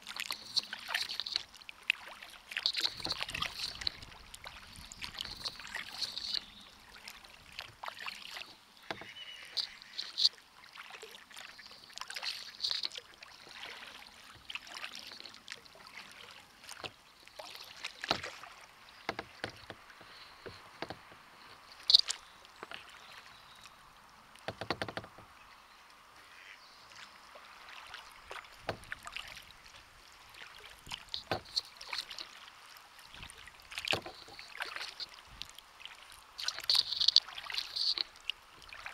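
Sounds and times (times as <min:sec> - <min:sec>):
water dripping: 0:00.0 - 0:10.4, 0:33.0 - 0:38.9
paddle strokes splashing: 0:00.0 - 0:25.4, 0:26.2 - 0:38.9.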